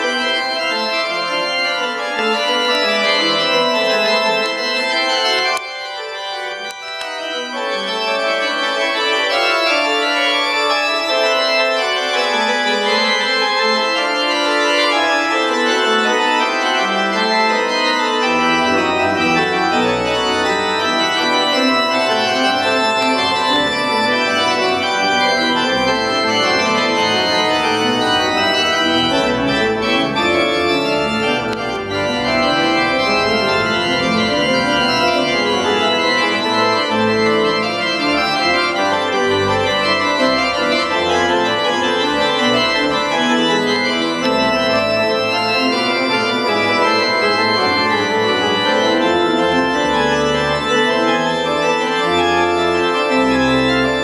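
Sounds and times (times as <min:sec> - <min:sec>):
pipe organ playing loud: 0:00.0 - 0:54.0.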